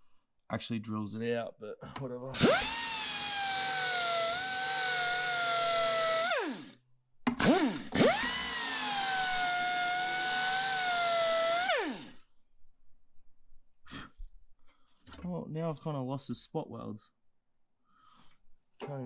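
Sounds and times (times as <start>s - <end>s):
power drill whining through metal: 2.4s - 12.3s.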